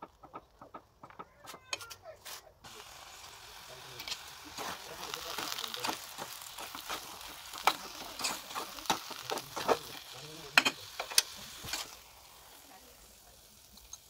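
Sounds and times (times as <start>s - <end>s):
spoon scraping and knocking pot: 4.0s - 12.0s.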